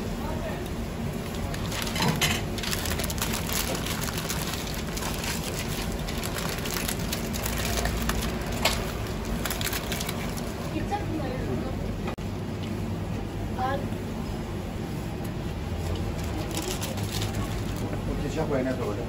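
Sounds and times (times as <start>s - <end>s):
paper wrappers crinkling: 1.3s - 10.7s, 15.8s - 18.0s.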